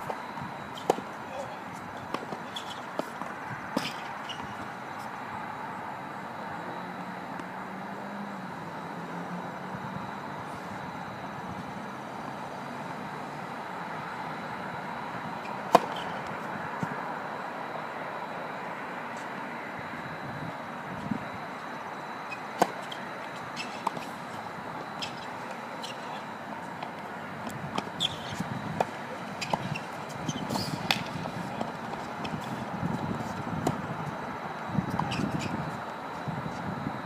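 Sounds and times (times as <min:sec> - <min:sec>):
outdoor background noise: 0:00.0 - 0:37.0.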